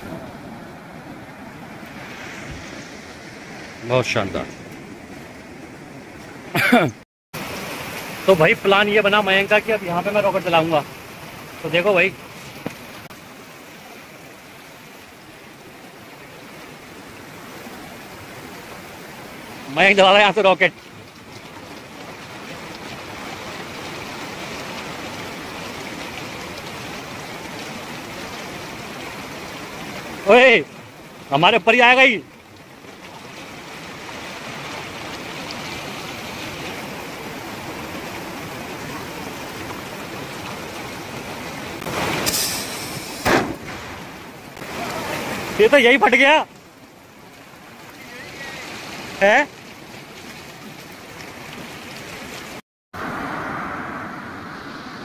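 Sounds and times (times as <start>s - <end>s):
river water rushing: 0.0s - 55.0s
firework rocket hissing: 41.9s - 44.0s.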